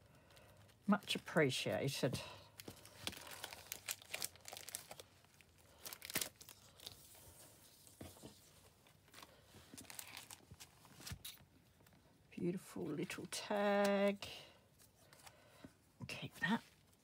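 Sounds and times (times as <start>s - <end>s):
plastic wrap crinkling: 0.0s - 7.4s, 8.9s - 11.5s.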